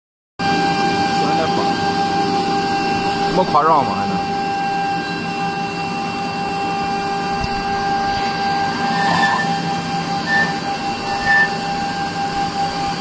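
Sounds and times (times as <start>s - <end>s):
router spindle whining: 4.2s - 13.0s
bit cutting acrylic: 8.0s - 11.9s.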